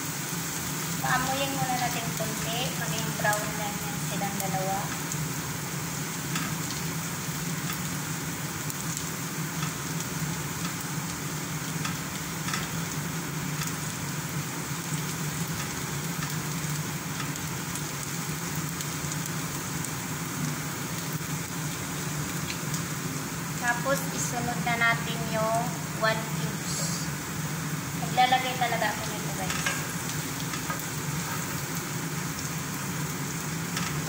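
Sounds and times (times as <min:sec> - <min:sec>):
onion and garlic sizzling in oil: 0:00.0 - 0:34.0
spatula stirring in pan: 0:29.5 - 0:31.8.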